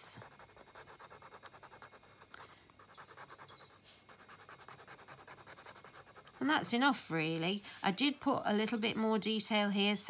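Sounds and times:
pen scratching on paper: 0.0 - 6.8.

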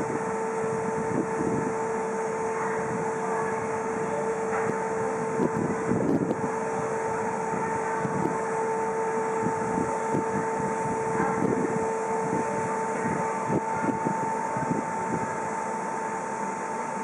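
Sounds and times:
electric locomotive humming: 0.0 - 17.0
wind thumps on microphone: 4.5 - 6.6, 9.4 - 15.4.

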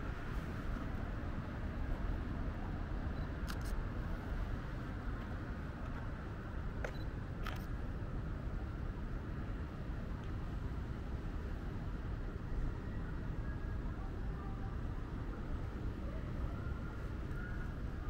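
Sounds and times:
distant city traffic hum: 0.0 - 18.0.

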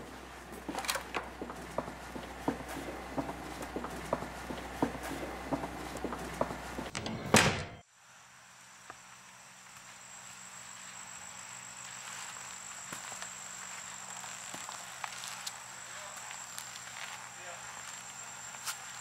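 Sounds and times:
insects trilling: 8.1 - 19.0
thin steady high tone: 8.2 - 19.0.

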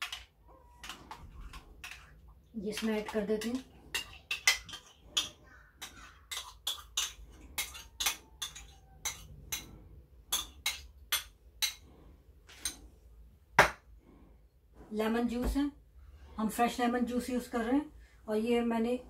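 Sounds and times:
spoon clinking against bowl: 2.8 - 9.7.

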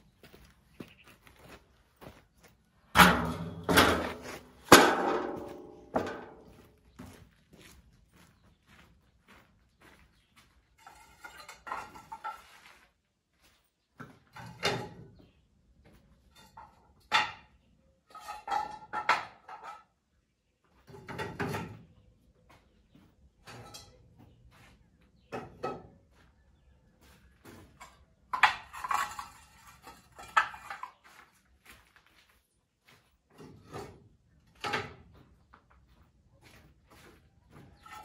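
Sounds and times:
metal scaffolding parts clanking: 2.9 - 6.6, 10.8 - 12.6, 16.2 - 20.0, 23.4 - 24.3, 27.5 - 31.1, 33.3 - 35.2, 37.6 - 38.0.

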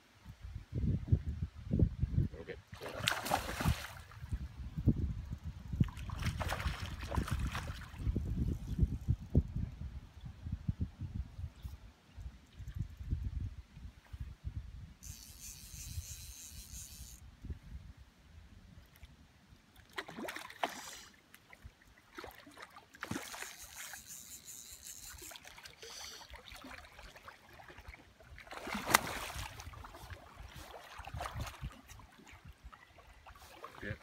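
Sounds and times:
high buzzing: 15.0 - 17.2
fish splashing in water: 22.1 - 31.8.

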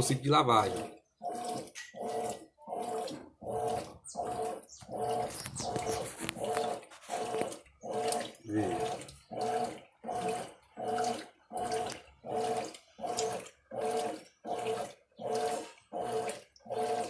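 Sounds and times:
washing machine motor humming: 0.0 - 17.0
water sloshing: 0.0 - 17.0.

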